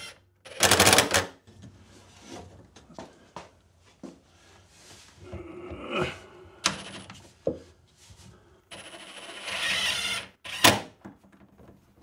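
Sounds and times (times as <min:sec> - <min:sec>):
cordless drill driving screw: 0:08.7 - 0:10.8.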